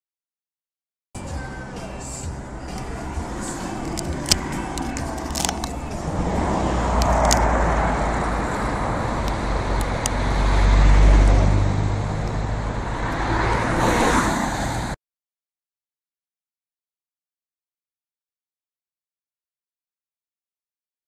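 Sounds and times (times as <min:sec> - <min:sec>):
car engine and tyre noise: 0:01.2 - 0:15.0
low rumble: 0:01.6 - 0:14.0.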